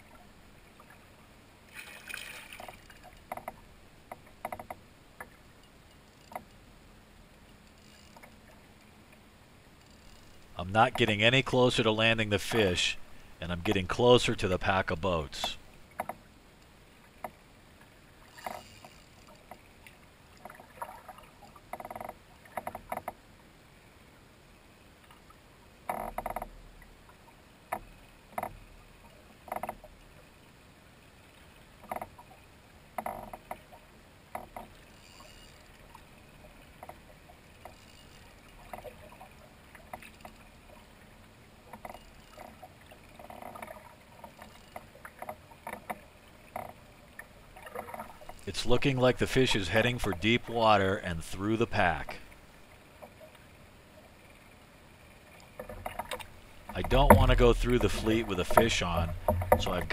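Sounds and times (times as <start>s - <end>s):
water lapping against kayak hull: 0.0s - 6.7s, 7.5s - 23.4s, 25.0s - 59.9s
quiet steady hiss: 0.0s - 59.9s
hull knocks: 55.6s - 59.9s.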